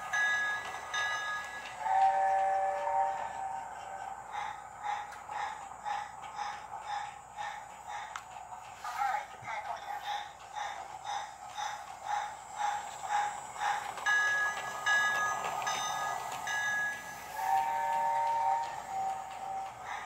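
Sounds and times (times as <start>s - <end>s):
toy train steam chuffing: 0.0s - 20.0s
steam whistle blasts: 1.8s - 3.9s, 17.3s - 19.4s.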